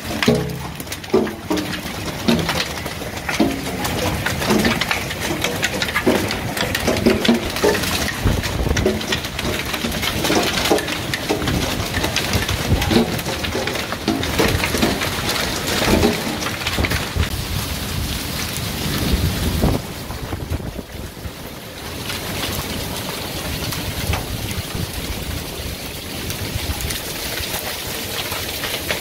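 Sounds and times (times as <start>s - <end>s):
hail and rain on wooden deck: 0.0s - 29.0s.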